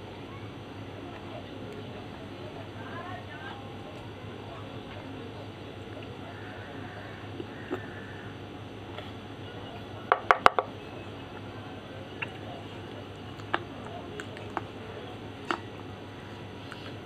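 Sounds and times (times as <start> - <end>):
slate crunching between teeth: 13.1 - 14.8.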